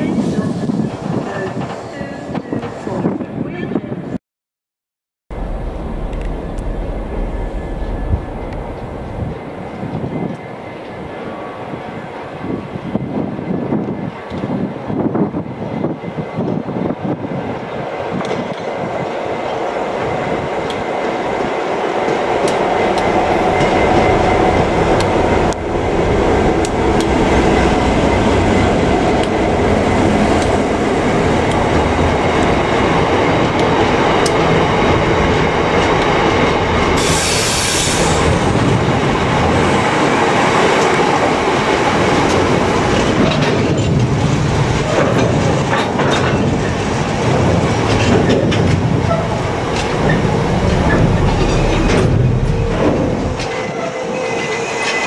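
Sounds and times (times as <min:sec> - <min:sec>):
diesel locomotive engine: 0:05.3 - 0:55.0
wheels clicking over rail joints: 0:42.2 - 0:53.7
wheel squeal: 0:50.0 - 0:55.0.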